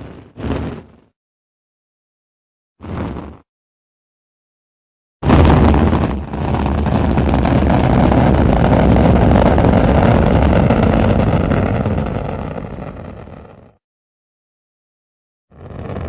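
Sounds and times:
rocket engine firing: 5.2s - 13.8s.

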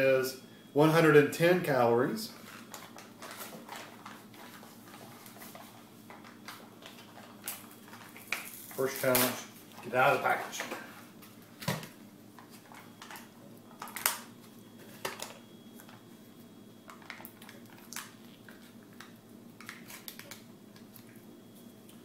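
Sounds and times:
foil lid crinkling: 2.4s - 9.5s.

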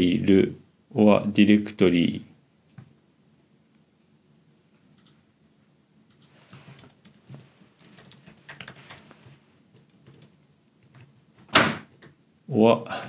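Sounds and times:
typing on computer keyboard: 6.1s - 12.2s.

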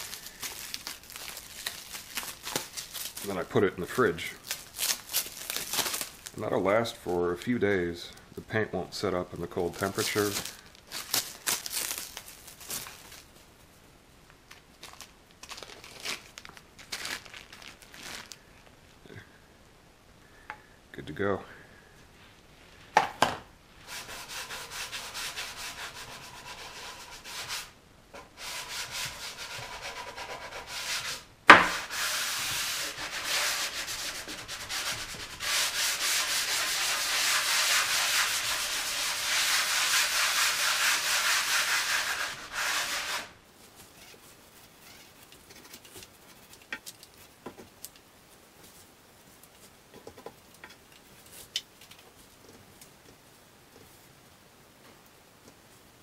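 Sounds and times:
hand sanding wood: 23.8s - 43.4s
sharp knock: 31.5s - 31.7s.

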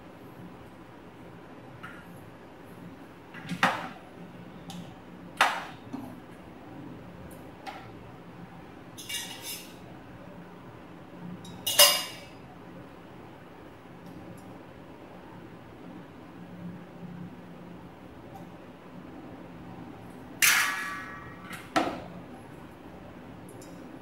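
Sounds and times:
metal bowls and plates clinking: 11.5s - 12.3s.

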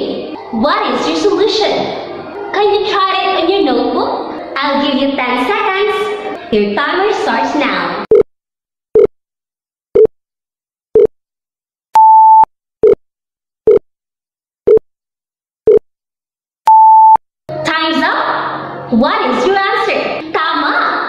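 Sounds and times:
longer higher beep: 12.0s - 13.0s, 16.7s - 17.2s
short low beeps: 12.0s - 13.0s, 16.7s - 17.2s.

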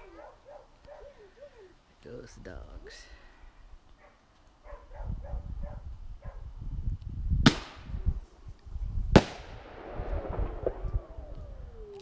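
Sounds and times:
fireworks bangs: 9.1s - 12.0s.

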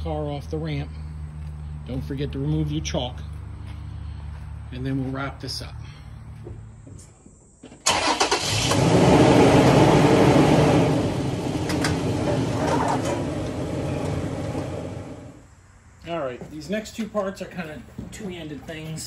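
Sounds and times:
car engine starting and idling: 7.7s - 15.4s.

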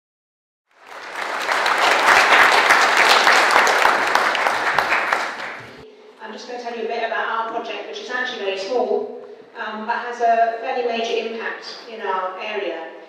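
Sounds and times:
audience applauding: 0.7s - 5.8s.

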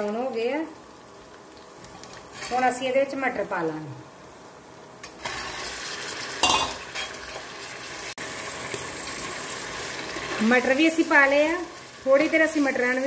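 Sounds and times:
peas sizzling in hot oil: 5.0s - 13.0s.

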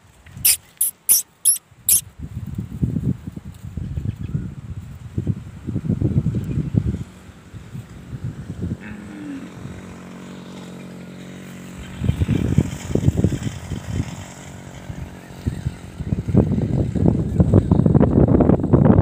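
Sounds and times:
wind buffeting microphone: 2.1s - 8.8s, 11.8s - 14.2s, 14.9s - 19.0s.

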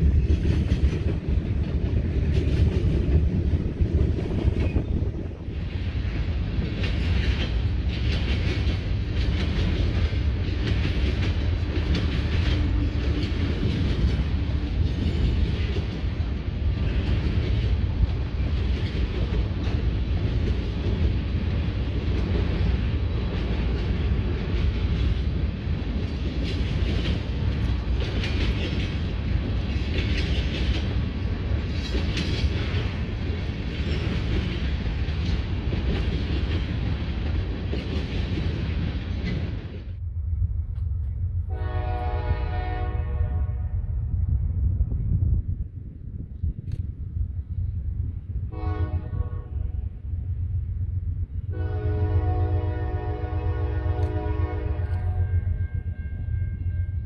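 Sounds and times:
train wheel clatter: 0.0s - 40.0s
freight train rumbling on rails: 0.0s - 57.0s.

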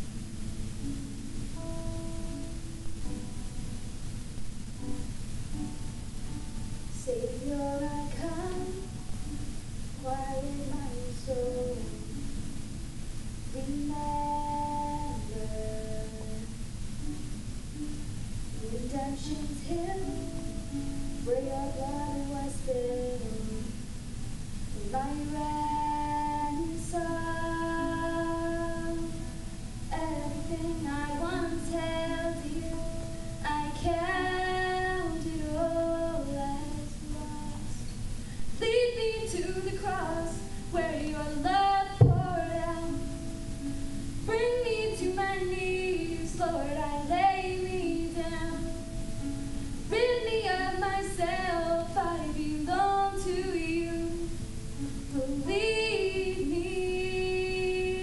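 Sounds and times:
acoustic guitar: 0.0s - 58.0s
girl singing worship song: 6.7s - 12.6s, 13.5s - 16.6s, 18.6s - 23.9s, 24.8s - 43.6s, 44.2s - 49.0s, 49.8s - 58.0s
sharp thump: 42.0s - 42.5s.

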